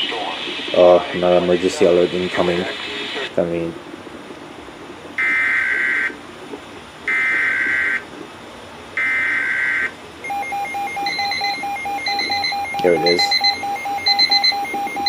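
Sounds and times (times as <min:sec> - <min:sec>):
rapidly pulsing alarm beep: 0:09.0 - 0:15.0
digital alert header bursts: 0:10.2 - 0:15.0.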